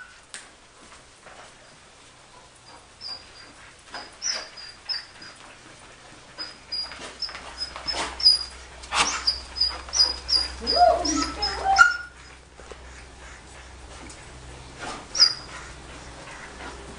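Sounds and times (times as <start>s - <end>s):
dog whining: 2.7s - 5.4s, 6.4s - 12.4s, 15.1s - 15.7s.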